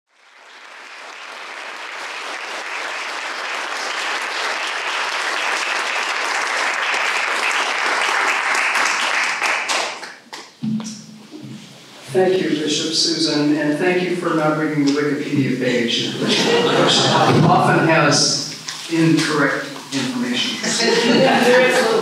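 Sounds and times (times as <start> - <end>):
audience applauding: 0.1 - 10.4, 16.3 - 17.6.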